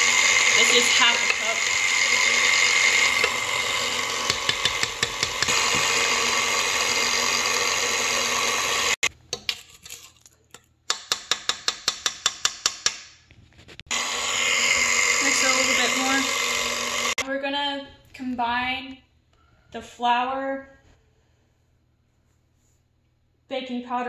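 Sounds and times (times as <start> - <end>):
stand mixer whining: 0.0 - 9.1, 13.9 - 17.2.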